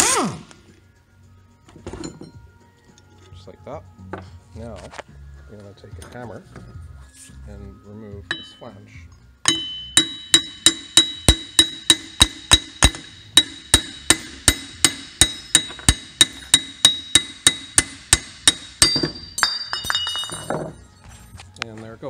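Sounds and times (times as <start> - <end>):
loose metal parts clinking: 1.7 - 3.4, 18.8 - 22.0
hammer blows on metal: 9.4 - 19.4.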